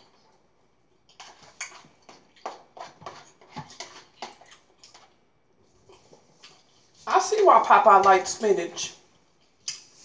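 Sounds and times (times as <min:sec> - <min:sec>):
eating clicks and smacks: 0:09.6 - 0:09.9.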